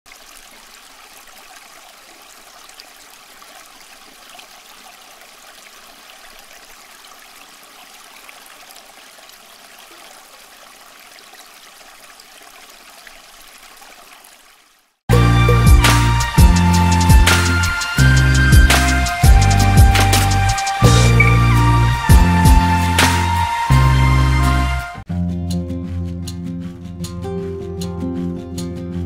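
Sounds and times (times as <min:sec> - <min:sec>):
fountain water trickling and splashing: 0:00.1 - 0:15.0
water drips: 0:00.1 - 0:15.0.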